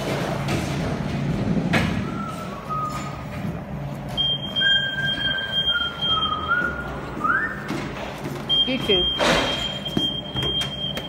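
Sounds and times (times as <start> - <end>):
low machine hum: 0.0 - 11.0
forklift squealing: 4.2 - 7.6.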